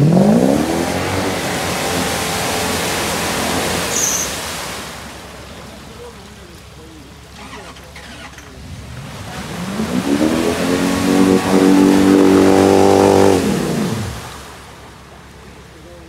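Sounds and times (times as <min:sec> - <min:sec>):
engine revving: 0:00.0 - 0:04.2, 0:07.4 - 0:14.5.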